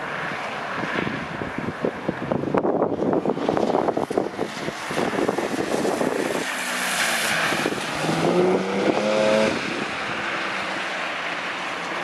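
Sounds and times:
car engine revving: 6.9 - 9.9.

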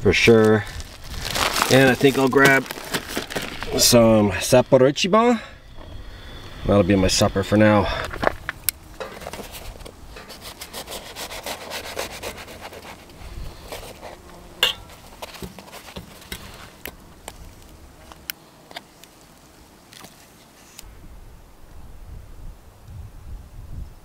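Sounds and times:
knife sawing through bread: 10.2 - 14.3.

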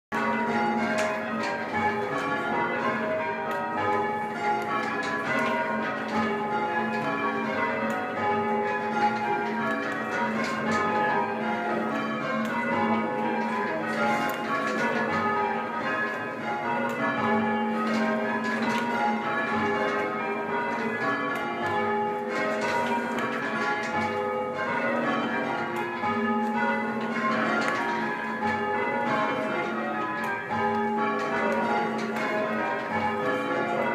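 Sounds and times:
church bells ringing: 0.1 - 33.9.

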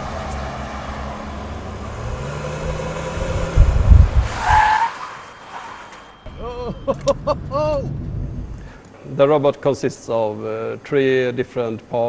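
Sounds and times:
car engine accelerating: 0.0 - 8.8
tyre squeal: 4.2 - 7.1.

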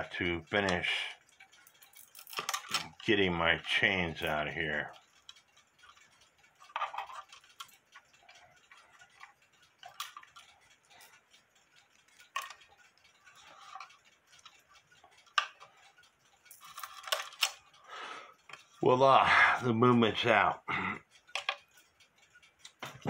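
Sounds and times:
clock chains clinking and rattling: 0.4 - 17.8, 21.2 - 22.0
metal clicks and knocks: 0.6 - 3.1, 5.2 - 17.7, 21.2 - 23.0.

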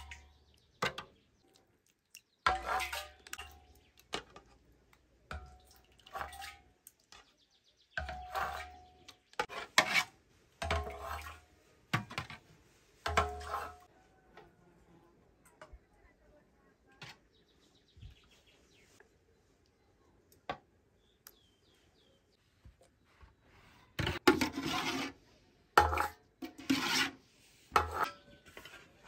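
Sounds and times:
yogurt slopping and plopping: 1.3 - 7.2
metal ladle scraping a pot: 2.5 - 4.5, 5.4 - 7.3, 8.0 - 12.4, 13.0 - 13.9, 24.0 - 29.0.

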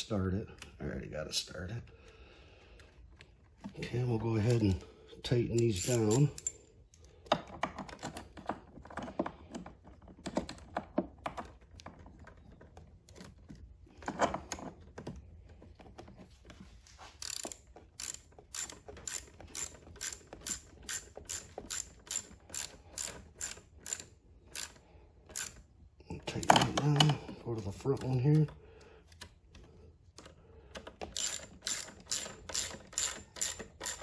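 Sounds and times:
ratchet wrench clicking: 5.4 - 6.6, 17.2 - 25.6, 31.1 - 34.0.

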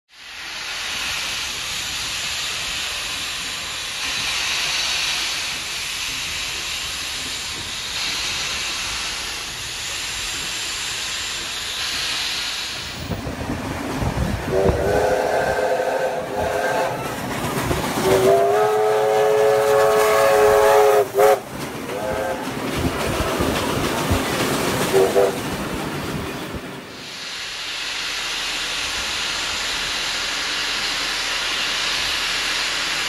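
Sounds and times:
passing train rumble: 0.1 - 33.0
steam hissing from locomotive: 0.1 - 33.0
steam whistle: 14.5 - 17.2, 18.0 - 22.5, 24.9 - 25.4.

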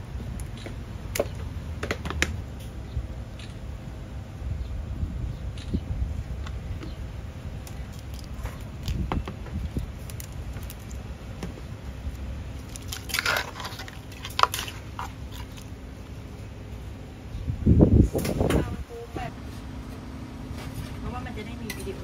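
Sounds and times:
low background rumble: 0.0 - 22.0
food and utensils clicking: 12.1 - 15.7.

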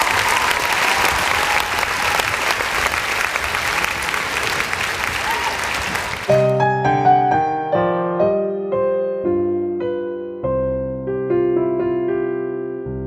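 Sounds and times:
crowd applauding: 0.0 - 6.9
gentle piano music: 6.3 - 13.0.

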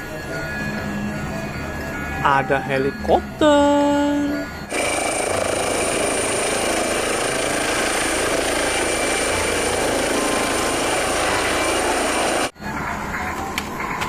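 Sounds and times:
helicopter rotor whir: 4.4 - 12.6.

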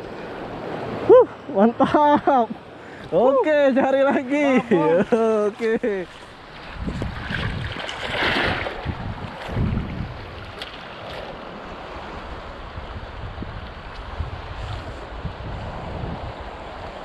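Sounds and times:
sea water lapping and sloshing: 3.9 - 17.0
wind rumbling on microphone: 6.0 - 17.0.

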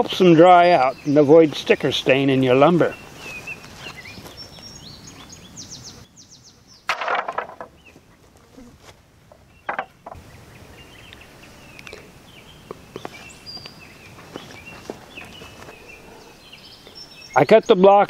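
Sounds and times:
birds chirping: 0.0 - 18.0
wooden sticks clattering: 6.9 - 7.8, 9.7 - 10.2.

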